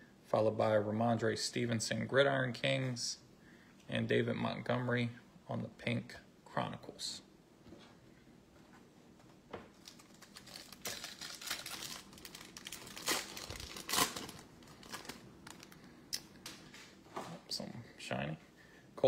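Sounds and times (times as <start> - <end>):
wrapper tearing and crinkling: 9.8 - 15.8.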